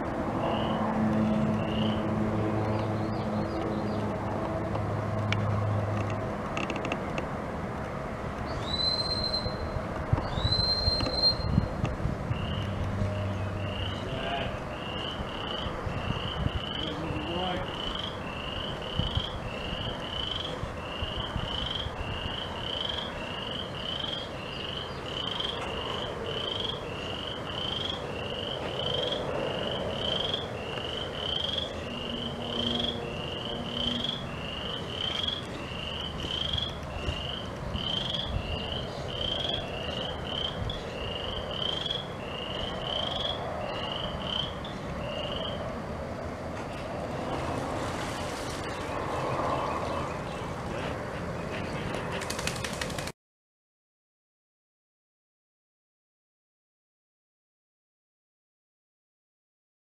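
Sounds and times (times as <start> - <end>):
frog calling: 13.6 - 45.6.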